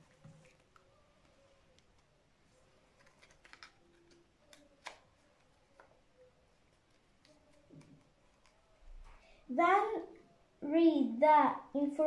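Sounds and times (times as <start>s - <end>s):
cardboard puzzle pieces clicking: 3.0s - 5.0s.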